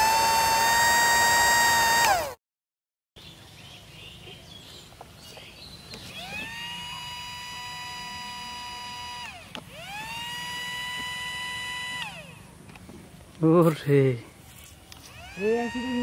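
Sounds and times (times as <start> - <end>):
toy electric motor whirring: 0.0 - 2.4, 6.0 - 12.4, 14.9 - 16.0.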